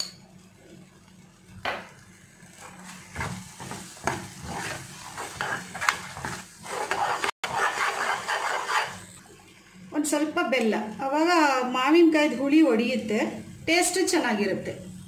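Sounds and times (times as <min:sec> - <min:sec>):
spatula scraping a metal pan: 0:03.2 - 0:09.0.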